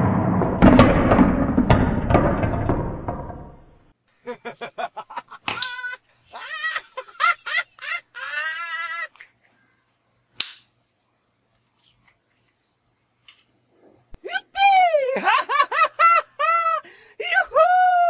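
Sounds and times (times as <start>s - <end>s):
sharp click: 10.4s - 10.7s.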